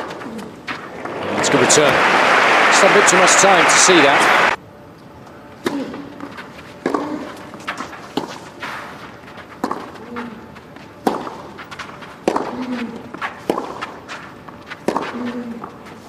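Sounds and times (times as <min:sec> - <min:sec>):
racket striking tennis ball: 0:09.6 - 0:10.3, 0:11.0 - 0:15.7.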